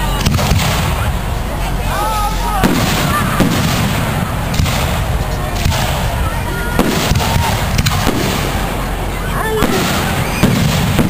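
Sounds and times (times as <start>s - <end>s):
low rumble: 0.0s - 11.0s
firework shells bursting: 2.6s - 11.0s.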